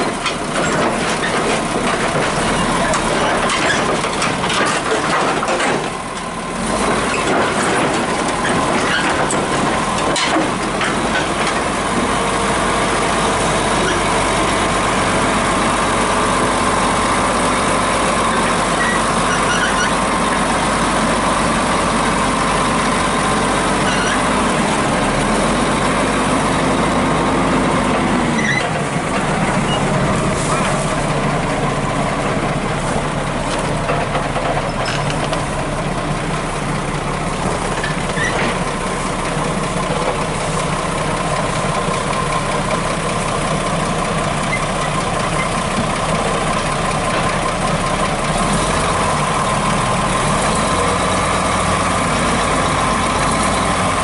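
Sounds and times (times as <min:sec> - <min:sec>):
steel tracks knocking and clanking: 0:00.0 - 0:12.2, 0:28.0 - 0:35.9
bulldozer diesel engine running: 0:00.0 - 0:54.0.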